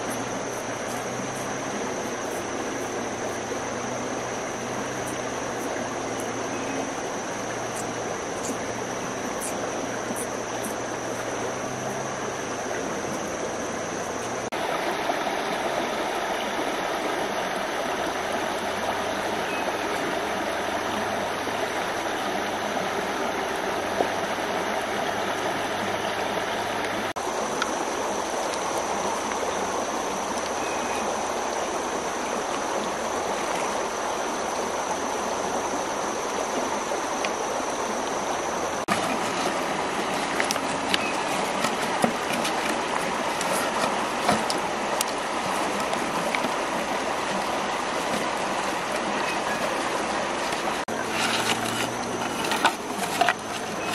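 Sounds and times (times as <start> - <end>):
faint steady high tone: 0.0 - 14.5, 19.1 - 33.0, 49.0 - 50.1
river water rushing over stones: 0.0 - 53.9.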